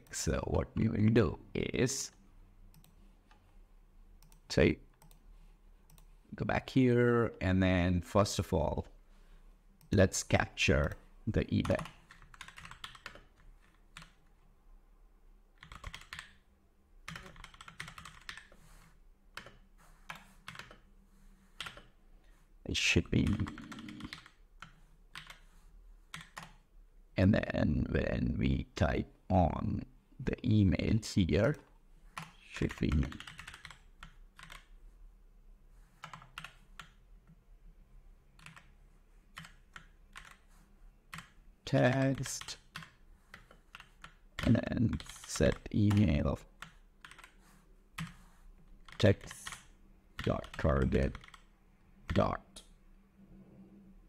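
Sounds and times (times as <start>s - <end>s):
typing on computer keyboard: 11.6s - 14.2s, 15.6s - 16.4s, 17.1s - 18.6s, 19.3s - 20.9s, 21.6s - 21.9s, 23.2s - 25.5s, 26.1s - 26.6s, 32.2s - 34.7s, 36.0s - 37.0s, 38.4s - 38.7s, 39.4s - 40.4s, 41.1s - 47.4s, 48.0s - 48.2s, 48.8s - 51.5s.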